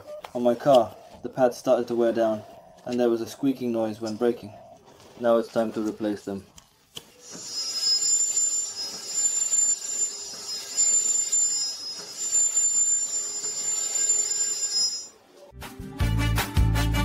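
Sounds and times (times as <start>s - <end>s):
brake pads squealing on disc: 7.2s - 15.1s.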